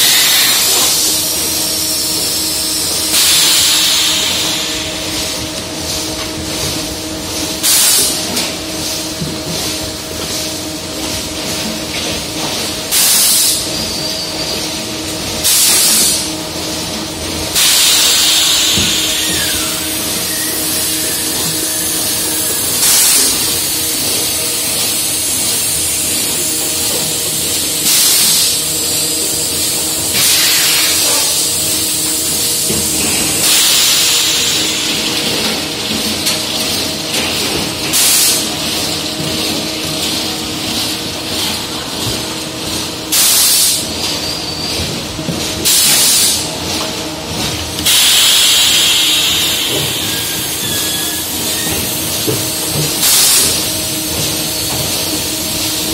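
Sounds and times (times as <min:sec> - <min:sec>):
compressed air hissing blasts: 0:00.0 - 0:05.1, 0:17.6 - 0:23.9, 0:30.1 - 0:35.1, 0:47.8 - 0:52.2.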